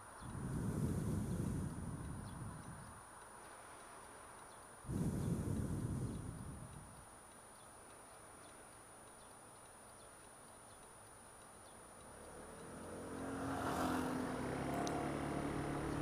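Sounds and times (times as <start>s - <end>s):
scooter and vehicle engines: 0.0s - 2.9s, 11.8s - 16.0s
faint traffic hum: 0.0s - 16.0s.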